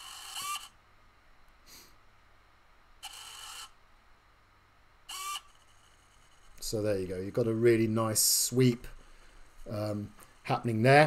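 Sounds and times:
servo motor whirring: 0.0s - 0.7s, 5.1s - 5.5s.

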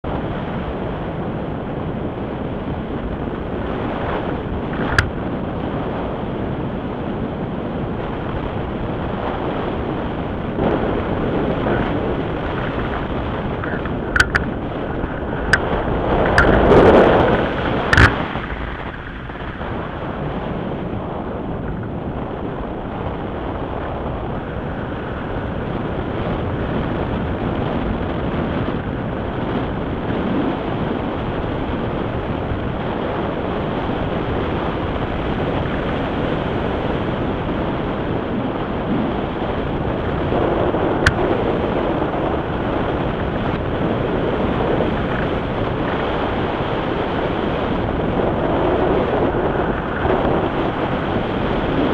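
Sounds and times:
wind rushing over microphone: 0.0s - 51.9s
sharp click: 13.6s - 14.5s, 17.9s - 18.2s.

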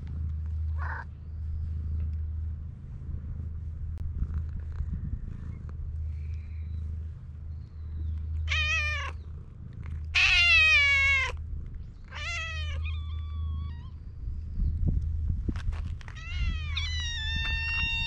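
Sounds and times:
cat meowing: 8.5s - 9.2s, 10.2s - 11.4s, 12.1s - 14.0s, 16.2s - 18.0s.

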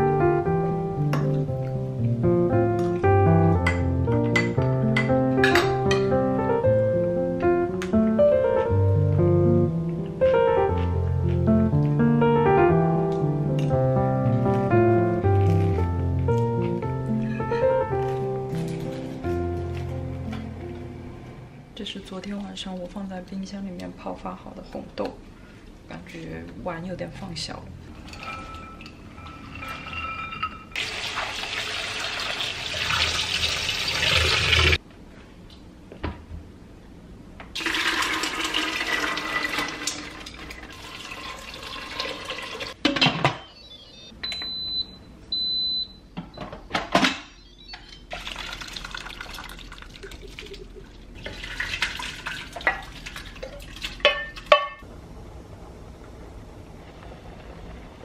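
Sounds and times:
water pouring into metal pot: 30.8s - 34.8s, 37.6s - 42.8s, 48.1s - 54.1s
high electronic beeps: 43.4s - 46.0s, 47.3s - 48.1s.

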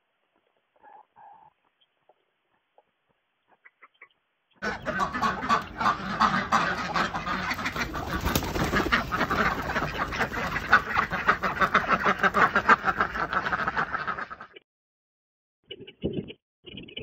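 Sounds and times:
ducks quacking: 3.5s - 14.6s.

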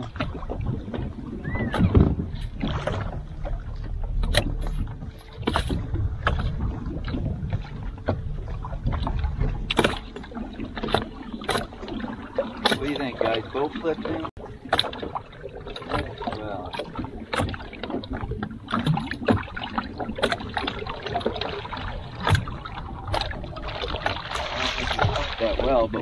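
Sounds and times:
wind on microphone: 0.0s - 13.0s
short splashes and knocks: 0.0s - 26.0s
water against boat hull: 0.0s - 26.0s.

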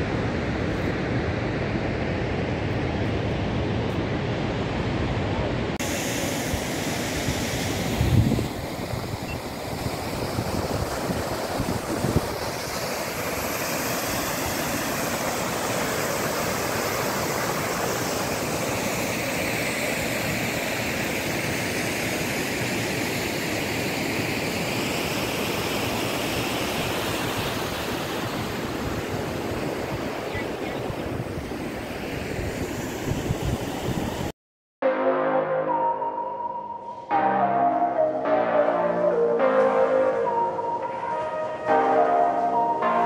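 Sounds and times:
wind gusts on microphone: 0.0s - 13.2s, 27.2s - 34.3s
water rushing in stream: 4.5s - 30.8s.

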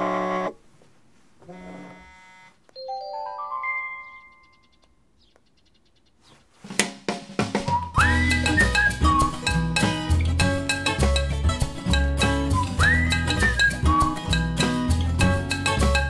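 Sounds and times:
phone alert chime: 2.8s - 4.6s.

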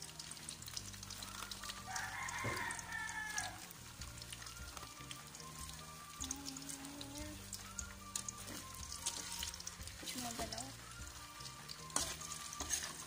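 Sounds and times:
food sizzling in oil: 0.0s - 13.0s
rooster crowing: 1.4s - 3.6s.

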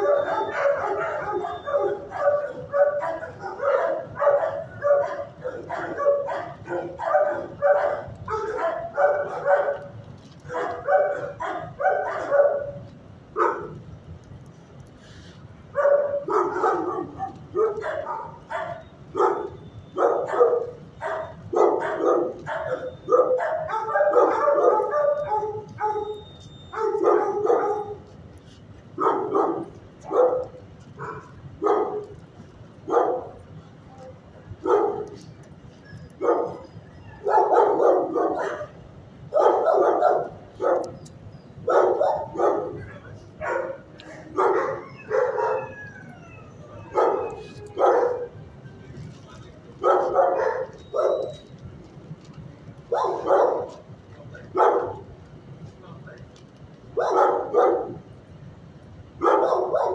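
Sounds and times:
dogs barking: 0.0s - 13.8s, 15.7s - 28.1s, 29.0s - 32.2s, 32.8s - 33.5s, 34.6s - 35.3s, 36.0s - 48.4s, 49.8s - 51.5s, 52.8s - 53.9s, 54.5s - 55.1s, 57.0s - 58.1s, 59.2s - 59.9s.

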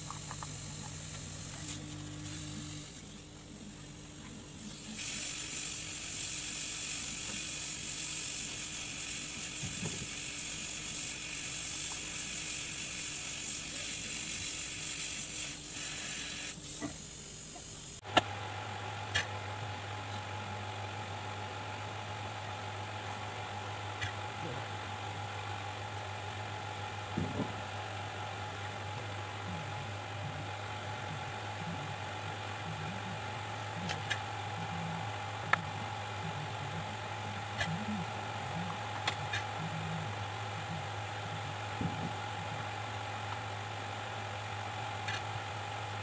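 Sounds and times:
steady low hum: 0.0s - 46.0s
flux hissing and sizzling: 4.6s - 18.0s.

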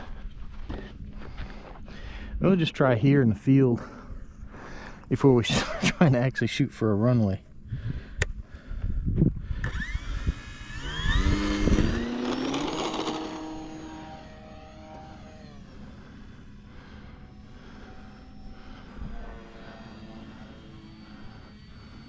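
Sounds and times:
model plane motor whine: 9.4s - 22.0s.

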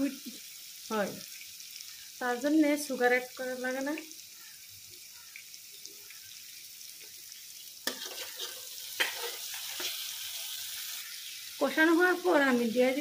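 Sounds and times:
paste sizzling in a wok: 0.0s - 13.0s
metal spatula scraping: 7.8s - 11.5s.

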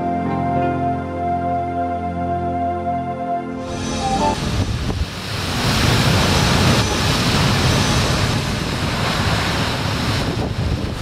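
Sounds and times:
storm waves breaking over rocks: 3.7s - 11.0s
wind buffeting microphone: 4.3s - 11.0s.

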